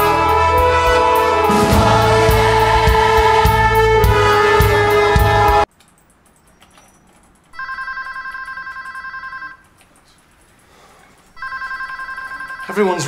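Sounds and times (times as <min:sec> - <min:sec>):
choir music: 0:00.0 - 0:05.7
telephone ringing electronic trill: 0:07.6 - 0:09.6, 0:11.4 - 0:13.0.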